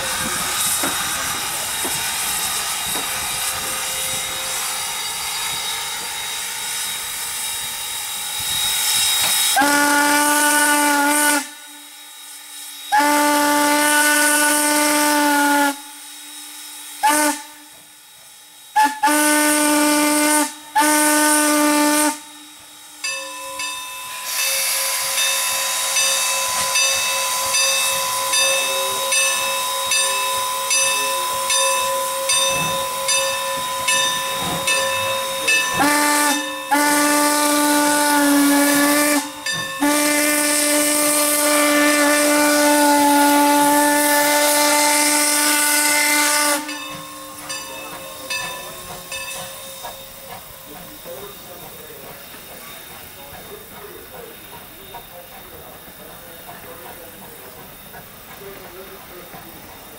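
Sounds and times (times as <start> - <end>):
steam whistle blasts: 0.0 - 7.3, 7.9 - 18.0, 18.7 - 47.5
steam hiss: 0.0 - 59.9.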